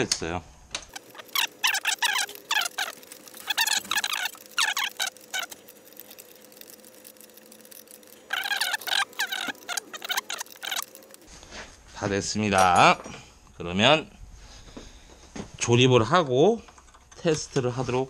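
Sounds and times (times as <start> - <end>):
plastic and wiring handled: 0.9 - 11.3
squeaky tool clicking: 0.9 - 11.3.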